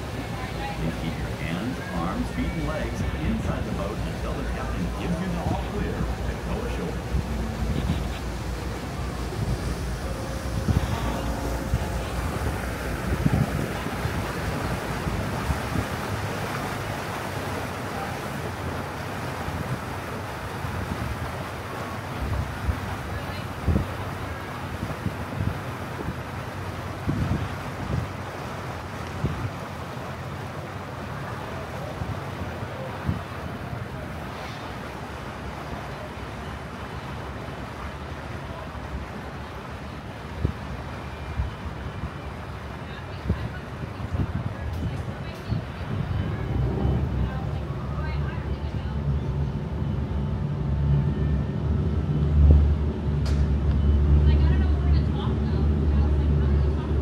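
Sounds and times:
wind buffeting microphone: 0.0 - 17.6, 19.5 - 29.8, 43.1 - 48.5
boat engine droning: 0.0 - 57.0
water rushing along hull: 0.0 - 57.0.

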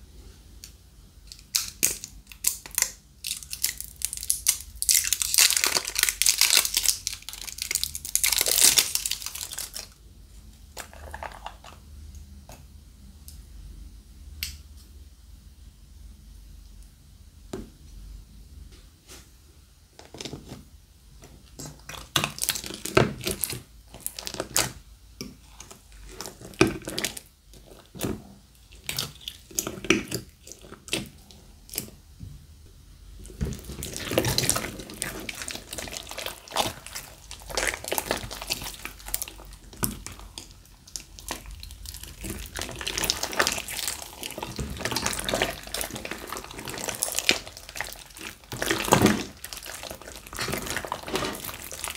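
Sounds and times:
slime squelching and popping: 1.5 - 9.9, 21.5 - 32.0, 33.2 - 51.9.

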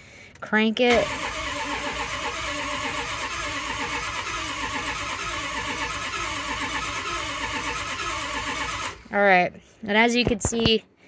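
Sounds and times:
starter cranking diesel engine: 0.9 - 9.1.

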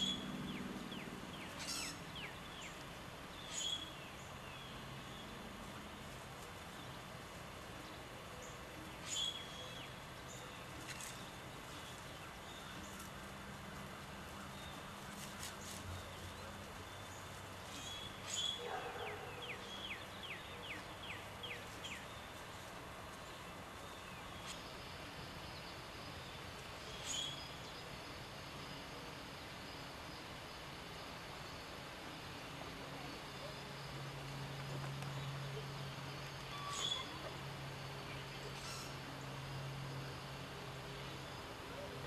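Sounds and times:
bird singing down-slurred notes: 0.0 - 2.8, 35.1 - 37.4
faint steady hiss: 0.0 - 42.0.

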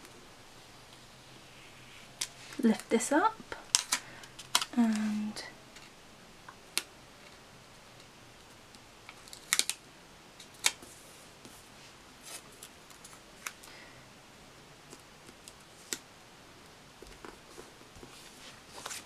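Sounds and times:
paper rustling: 17.1 - 19.0.

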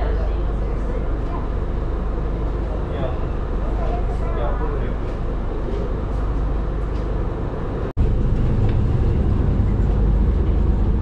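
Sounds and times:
boat engines droning: 0.0 - 11.0.

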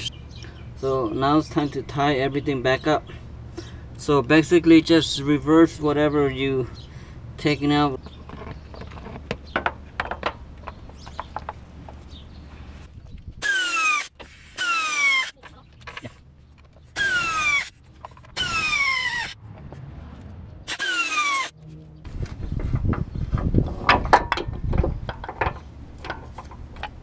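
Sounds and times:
pneumatic wrench bursts: 13.4 - 15.4, 16.9 - 19.4, 20.7 - 21.5.

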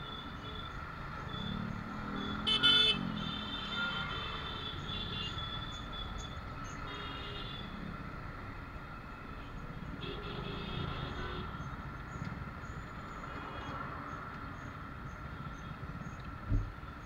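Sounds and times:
nearby vehicle engines running: 0.0 - 6.8
motorcycle road noise: 0.0 - 17.0.

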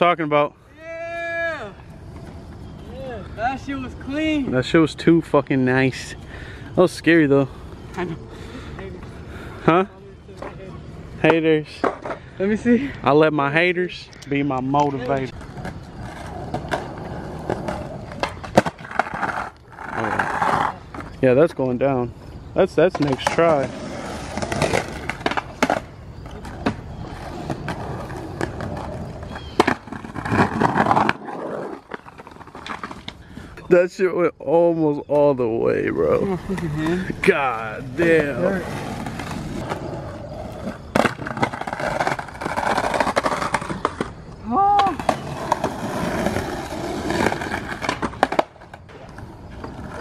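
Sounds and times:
skateboard wheels rolling on concrete: 0.0 - 50.0
skateboard clacking on ground: 11.2 - 12.2, 14.5 - 21.2, 22.8 - 33.2, 36.4 - 50.0.

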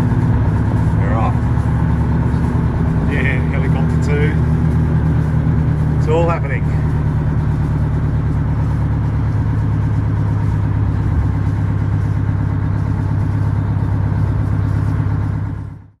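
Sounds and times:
engine running steadily: 0.0 - 16.0.

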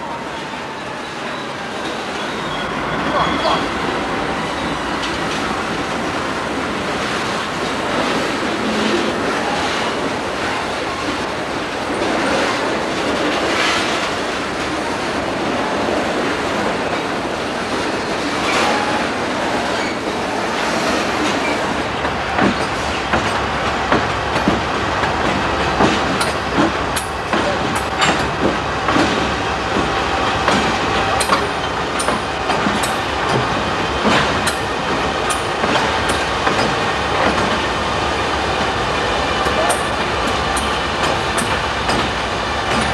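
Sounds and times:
freight train rolling past: 0.0 - 42.9
train wheels clicking and knocking: 21.2 - 37.8, 39.4 - 42.9.

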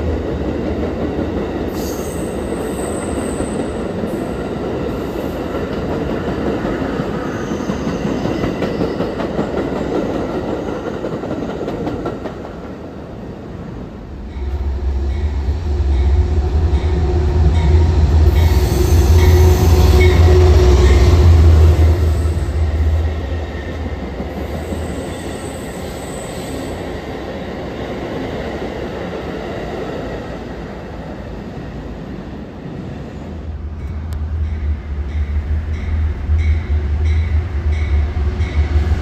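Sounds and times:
train rumbling past: 0.0 - 39.0
train wheels squealing: 1.7 - 5.5, 7.0 - 9.6, 16.7 - 21.2, 24.3 - 27.0.

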